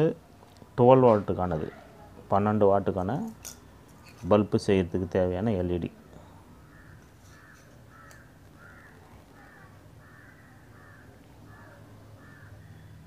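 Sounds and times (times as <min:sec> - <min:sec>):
faint bird calls: 0:06.1 - 0:13.0.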